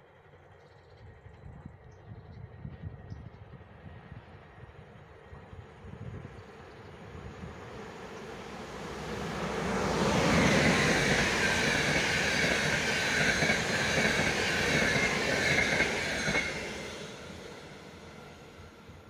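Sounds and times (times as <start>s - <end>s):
high train whine: 0.0s - 19.0s
passenger train passing: 0.0s - 19.0s.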